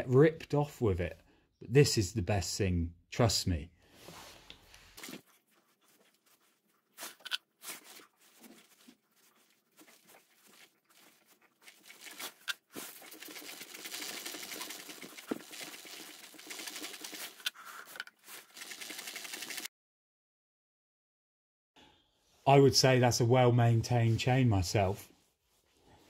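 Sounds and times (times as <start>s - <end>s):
brush dabbing chain: 5.5s - 19.7s
chain whirring over sprocket: 11.6s - 19.7s.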